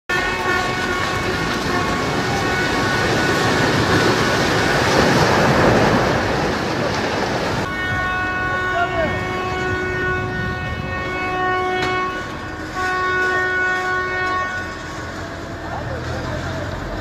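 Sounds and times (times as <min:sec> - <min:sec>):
horn steady tone: 0:00.1 - 0:04.8, 0:07.6 - 0:15.9
falling concrete rumble: 0:00.1 - 0:17.0.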